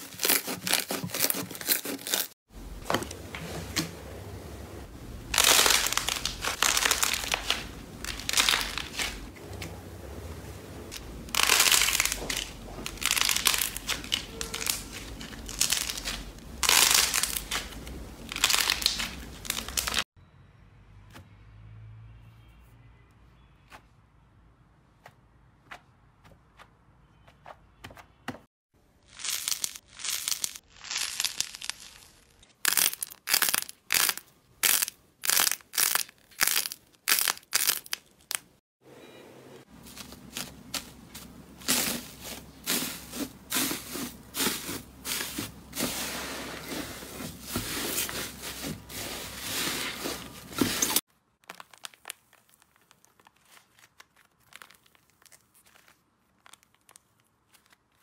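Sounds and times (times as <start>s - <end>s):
foam sponge squeezed crackling: 0.0s - 2.4s, 10.9s - 20.0s, 39.8s - 58.0s
foil-covered slime crinkling: 0.0s - 2.4s, 5.2s - 9.3s, 10.9s - 20.1s, 29.0s - 38.6s, 39.8s - 58.0s
clay crust cracking: 29.0s - 38.6s, 50.6s - 58.0s.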